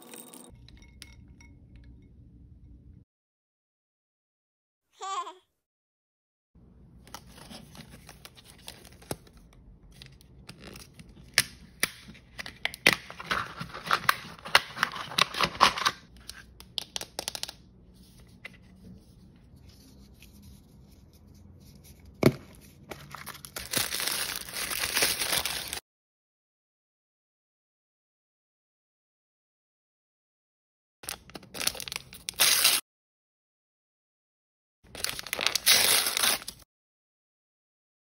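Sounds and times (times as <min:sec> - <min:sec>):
paper wrapping crumpling: 0:22.8 - 0:25.8, 0:31.1 - 0:32.8, 0:34.9 - 0:36.6
plastic wrapping tearing and crinkling: 0:23.1 - 0:25.8, 0:31.1 - 0:32.8, 0:34.9 - 0:36.6.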